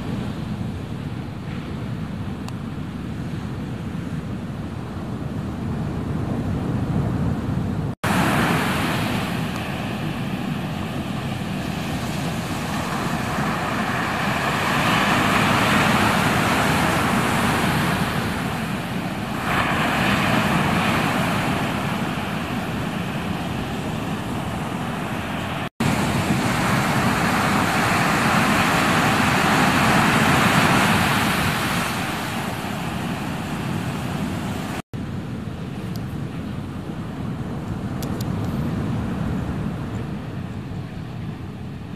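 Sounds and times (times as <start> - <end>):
ocean waves breaking: 5.2 - 38.0.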